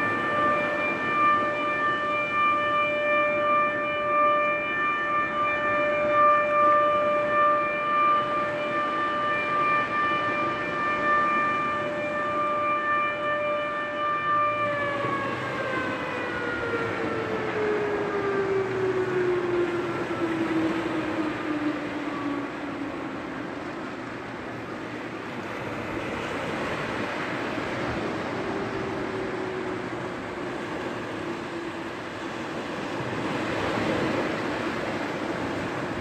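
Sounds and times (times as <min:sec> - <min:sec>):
siren: 0:00.0 - 0:36.0
small waves breaking: 0:22.5 - 0:36.0.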